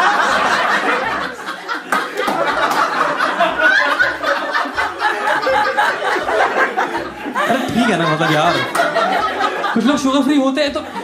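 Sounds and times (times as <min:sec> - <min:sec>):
audience laughing: 0:00.0 - 0:11.0.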